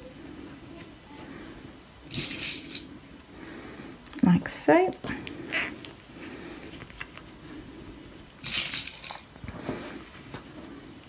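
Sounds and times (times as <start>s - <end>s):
fabric rustling: 5.4s - 11.0s.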